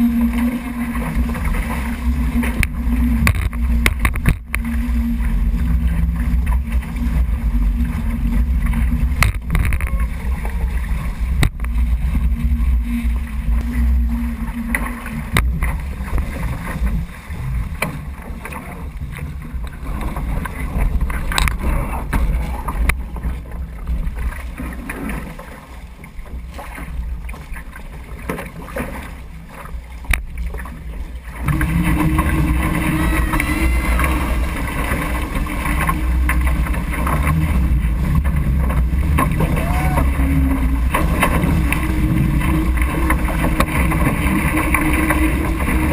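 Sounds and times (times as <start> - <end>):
low steady tone: 0.0 - 24.9, 30.0 - 45.9
water rushing off hulls: 0.0 - 45.9.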